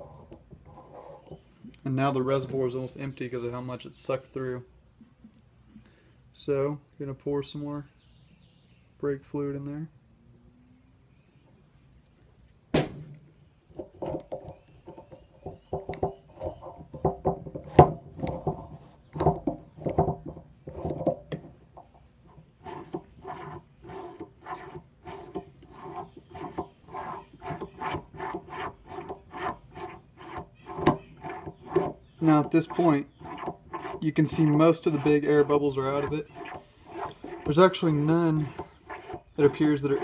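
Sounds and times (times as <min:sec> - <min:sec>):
sharp knock: 0:12.7 - 0:13.2
cylinder being pumped by hand: 0:14.1 - 0:40.0.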